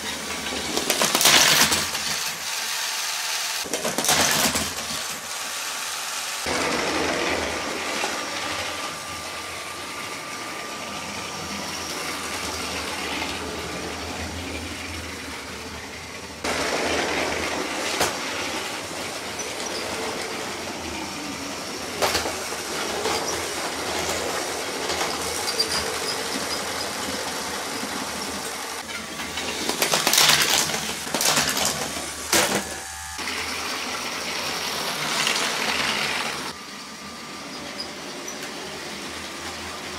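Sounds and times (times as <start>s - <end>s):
wheels clicking over track joints: 0.0s - 2.5s
toy train motor whir: 0.0s - 39.9s
plastic bricks clattering: 28.8s - 32.6s.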